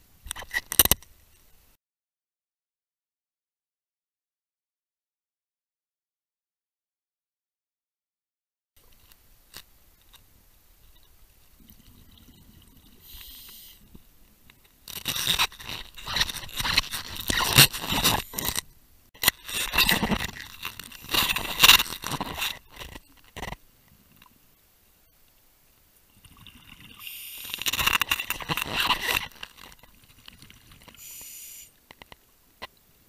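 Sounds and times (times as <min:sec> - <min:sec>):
regulator breathing hiss: 0:13.0 - 0:13.8, 0:27.0 - 0:27.6, 0:31.0 - 0:31.8.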